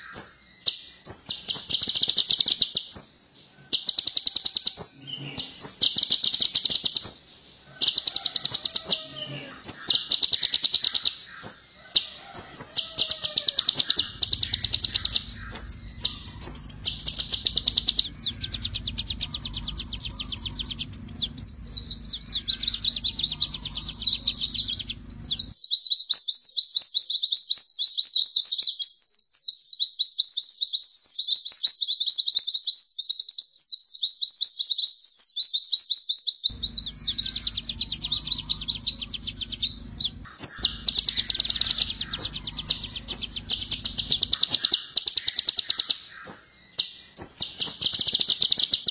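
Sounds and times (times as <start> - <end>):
sunbird singing trills: 0.0 - 25.6, 36.5 - 48.9.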